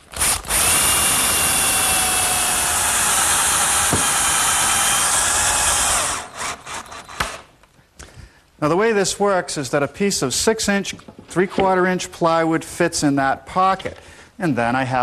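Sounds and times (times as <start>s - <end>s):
power drill boring into wood: 0.0s - 7.5s.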